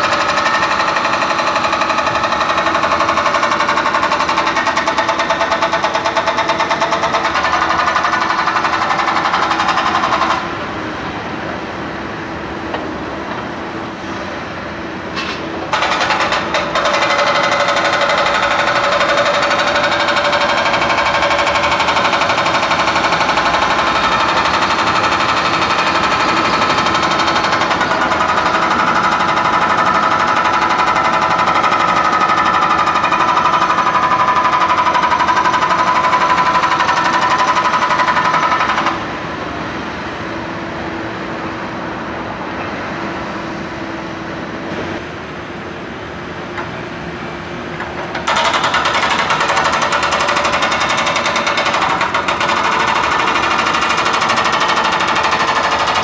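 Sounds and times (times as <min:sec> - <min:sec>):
hydraulic breaker hammering pavement: 0:00.0 - 0:10.6, 0:15.2 - 0:39.0, 0:47.8 - 0:56.0
quieter steady machine noise: 0:00.0 - 0:56.0.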